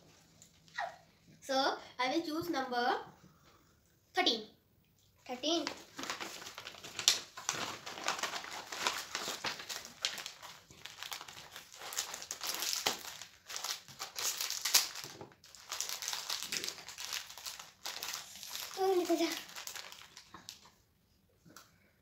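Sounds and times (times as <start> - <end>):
plastic wrapper crinkling: 5.4 - 20.8
paper envelope rustling: 5.6 - 20.6.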